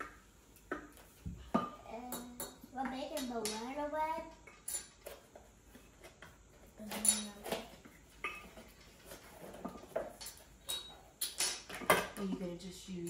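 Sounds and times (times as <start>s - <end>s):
metal spoons clinking: 6.9s - 7.4s, 10.2s - 11.6s.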